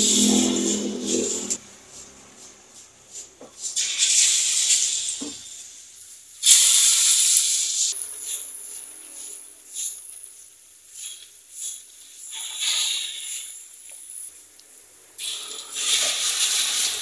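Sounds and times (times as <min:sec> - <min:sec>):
oil sizzling in a wok: 0:00.0 - 0:17.0.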